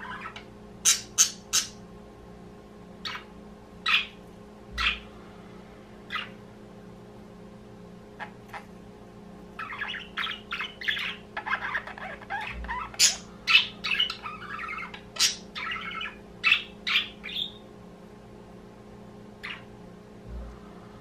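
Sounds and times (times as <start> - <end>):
budgerigars chattering: 0.0 - 1.8, 9.6 - 17.6
sharp loud bird calls: 0.0 - 1.8, 3.0 - 4.2, 9.6 - 17.7.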